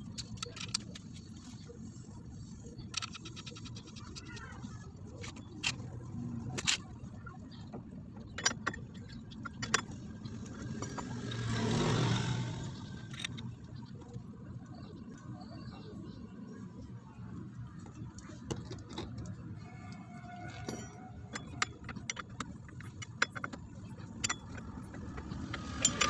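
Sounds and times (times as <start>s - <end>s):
metal tools clinking: 8.2s - 13.5s, 20.5s - 26.0s
vehicle passing: 10.5s - 13.4s.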